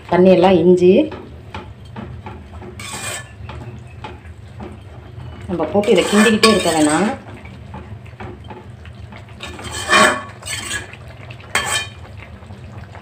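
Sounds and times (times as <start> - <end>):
metal spoon scraping a pot: 2.6 - 3.6, 5.7 - 7.2, 9.4 - 12.0.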